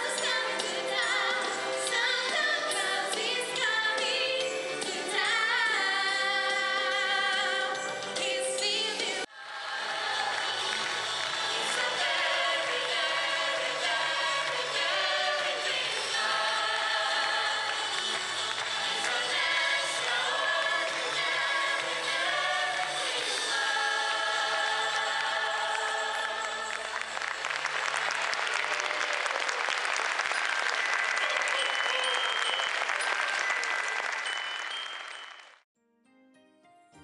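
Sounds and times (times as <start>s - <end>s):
group singing with music: 0.0s - 27.7s
audience applause: 9.6s - 23.6s, 25.1s - 35.6s.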